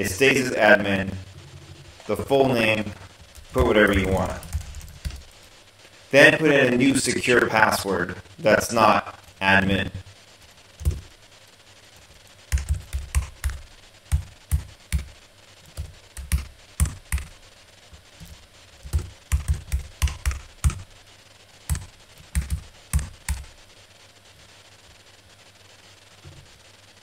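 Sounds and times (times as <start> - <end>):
computer keyboard typing: 3.3 - 5.4, 12.5 - 17.4, 18.2 - 20.9, 21.7 - 23.5.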